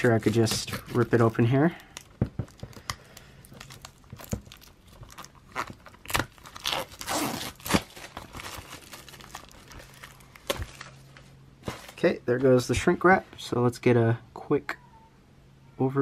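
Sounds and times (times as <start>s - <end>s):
plastic wrap crackling and tearing: 0.0s - 11.2s.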